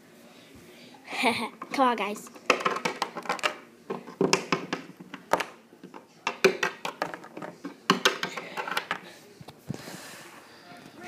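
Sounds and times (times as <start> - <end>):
plastic toys tapping on tabletop: 2.5 - 9.0.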